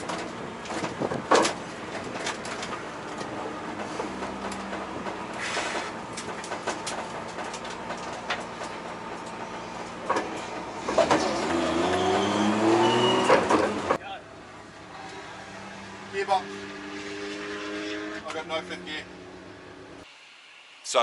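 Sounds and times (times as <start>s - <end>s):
interior rattles and clicks: 0.0s - 12.0s.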